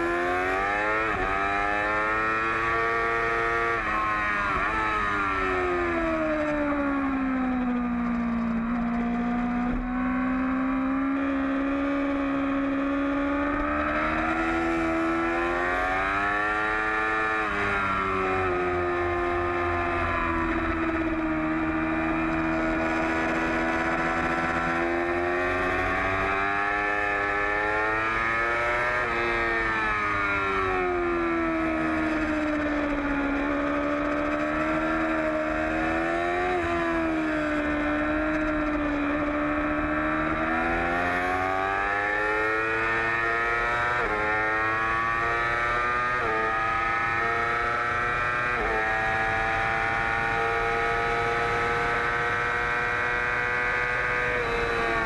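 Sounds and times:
motorcycle engine at racing revs: 0.0s - 55.0s.

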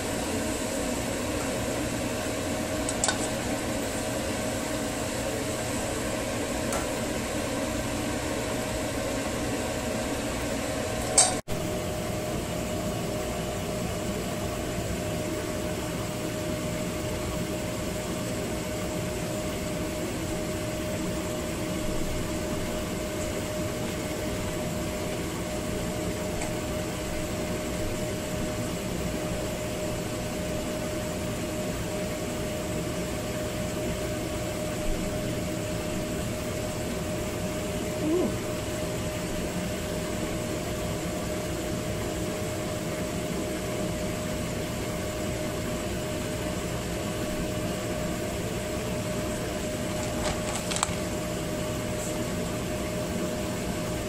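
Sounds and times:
appliance hum and hiss: 0.0s - 54.0s
sharp click: 11.1s - 11.4s.

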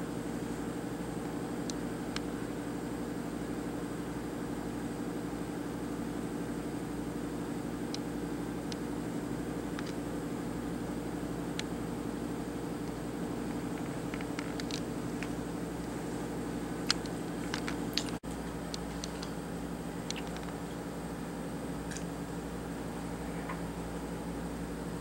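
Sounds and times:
electrical hum and fan whir: 0.0s - 25.0s.

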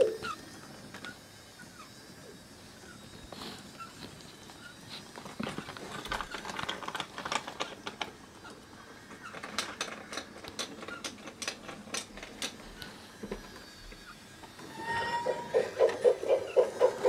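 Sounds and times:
plastic toy mechanisms clicking: 5.2s - 13.8s.

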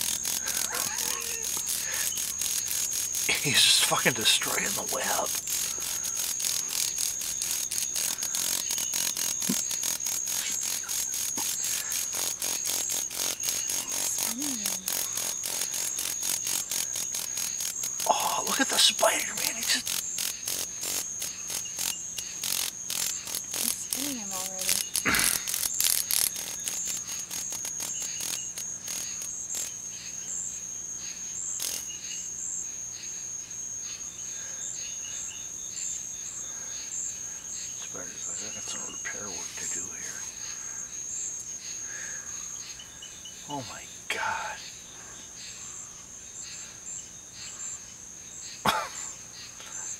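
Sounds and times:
sharp clicks: 0.0s - 29.7s
high ringing insect trill: 0.0s - 49.9s.

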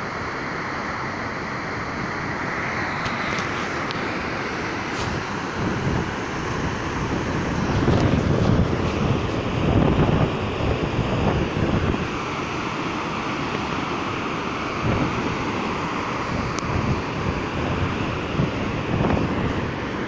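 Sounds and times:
waterfall rushing: 0.0s - 20.0s
wind buffeting microphone: 5.0s - 12.4s, 14.8s - 20.0s.

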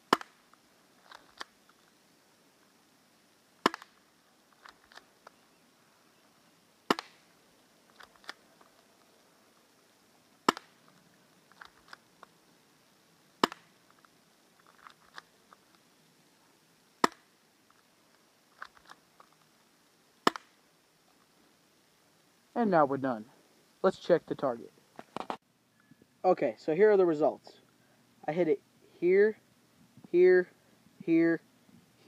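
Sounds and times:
airsoft pistol shots: 6.9s - 7.2s.

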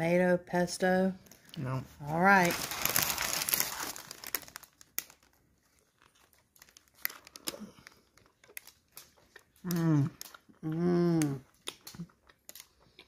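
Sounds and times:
paper wrapper crinkling: 1.3s - 9.1s.

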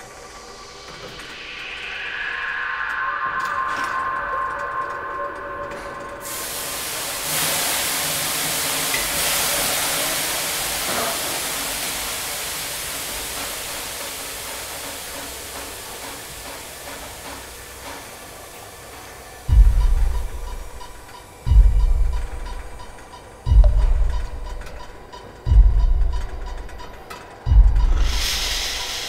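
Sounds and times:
long even hiss: 0.0s - 18.7s, 27.9s - 29.0s
loud deep boom: 19.5s - 20.8s.

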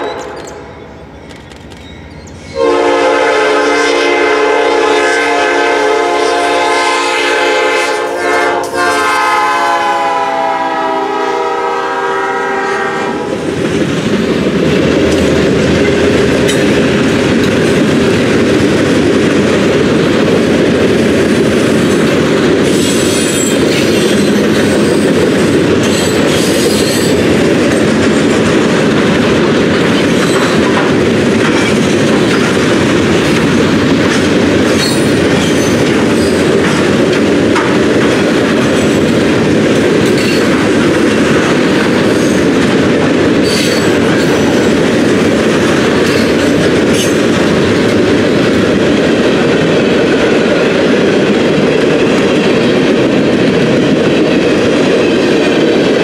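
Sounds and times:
high-pitched wheel squeals: 0.0s - 2.6s
train wheels rumbling on rails: 0.0s - 56.0s.

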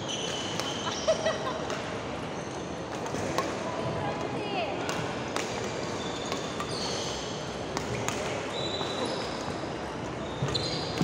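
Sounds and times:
court shoes squeaking: 0.0s - 3.7s, 4.9s - 11.0s
racket hitting shuttlecock: 7.7s - 8.4s.

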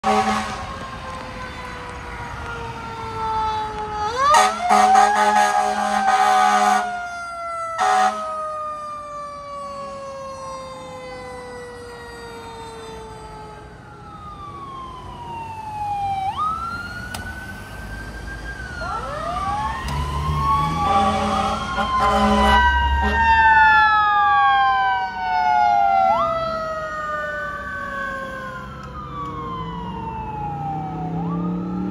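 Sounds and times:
loud horn blasts: 0.0s - 0.8s, 4.3s - 6.9s, 7.8s - 8.3s, 20.8s - 23.3s
sirens wailing: 0.0s - 31.9s.

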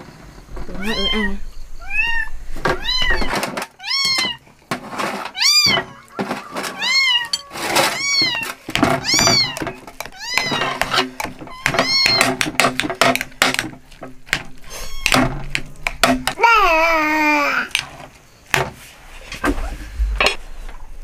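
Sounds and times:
cat meowing: 0.8s - 4.4s, 6.7s - 10.9s, 11.5s - 12.3s, 14.6s - 15.3s.

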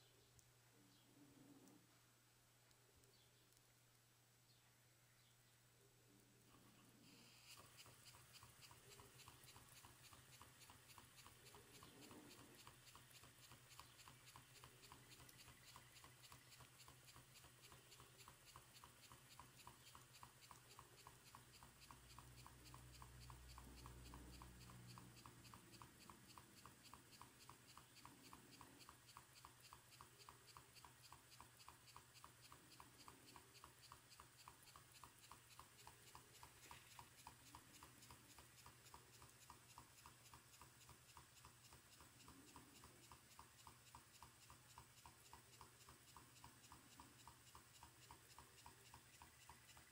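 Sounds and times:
steam engine ticking: 7.2s - 49.9s.

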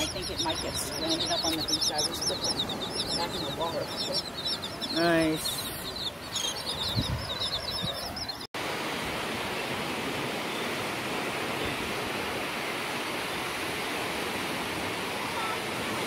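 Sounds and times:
bird chirping: 0.0s - 8.5s.

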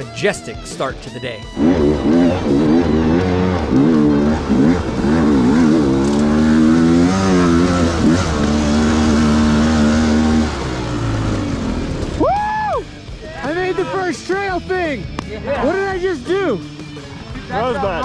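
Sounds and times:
dirt bike engine revving: 1.4s - 12.2s.

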